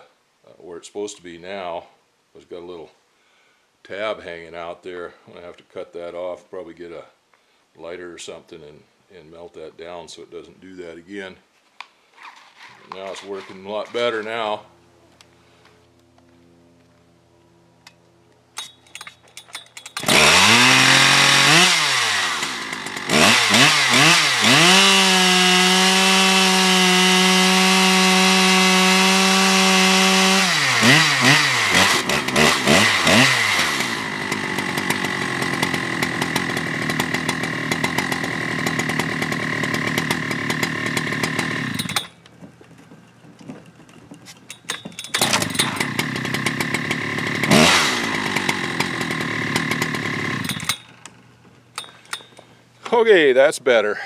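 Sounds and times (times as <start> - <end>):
chainsaw starting and revving: 19.8 - 42.3, 44.1 - 52.4.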